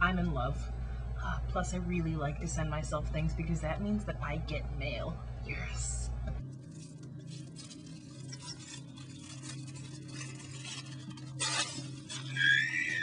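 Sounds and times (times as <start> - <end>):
steady low hum: 0.0 - 13.0
rustling handling noises: 6.4 - 12.4.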